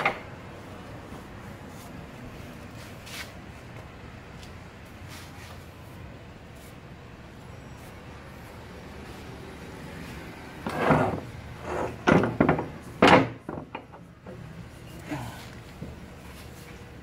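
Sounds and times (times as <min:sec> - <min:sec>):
metal clunks and scrapes: 0:10.6 - 0:14.4.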